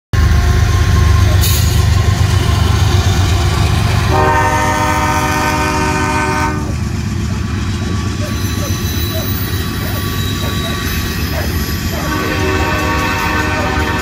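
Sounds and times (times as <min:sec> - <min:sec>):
diesel locomotive engine rumble: 0:00.2 - 0:14.0
locomotive horn chord: 0:03.9 - 0:06.8, 0:09.7 - 0:14.0.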